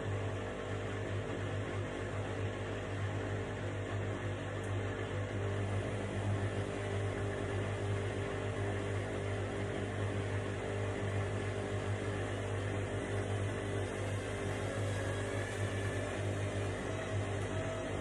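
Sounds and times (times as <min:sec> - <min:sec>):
washing machine running: 0:00.0 - 0:18.0.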